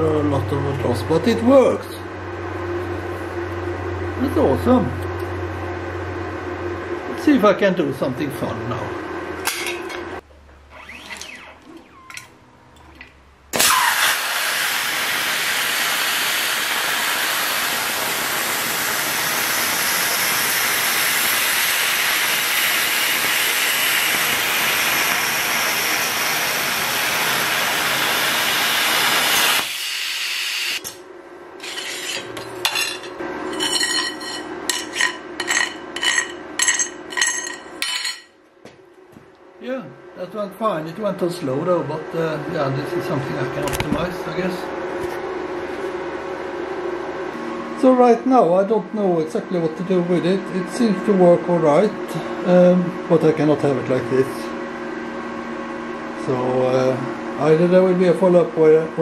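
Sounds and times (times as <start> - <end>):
plasma torch hissing: 13.6 - 30.9.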